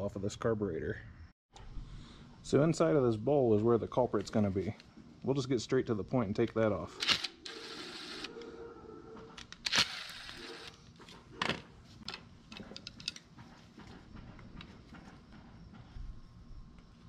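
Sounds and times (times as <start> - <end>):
electric screwdriver whirring: 7.0 - 8.3, 9.5 - 10.8
small parts clicking and tapping: 12.0 - 13.5.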